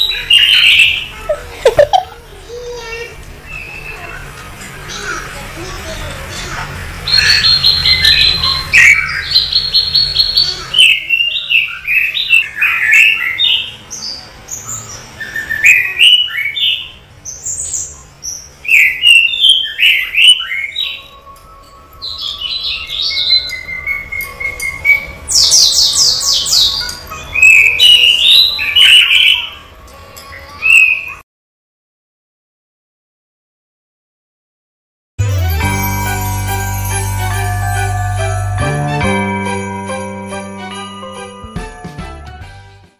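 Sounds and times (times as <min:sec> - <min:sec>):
bird chirping: 0:07.0 - 0:29.7.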